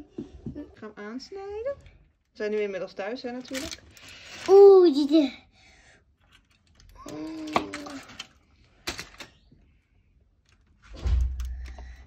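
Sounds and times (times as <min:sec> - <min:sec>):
aluminium foil crinkling: 0:03.1 - 0:05.1.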